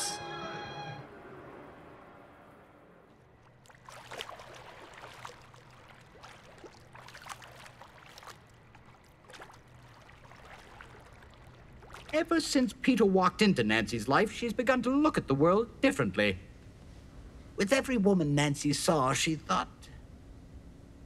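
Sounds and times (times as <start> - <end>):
pool water splashing: 2.8 - 13.4.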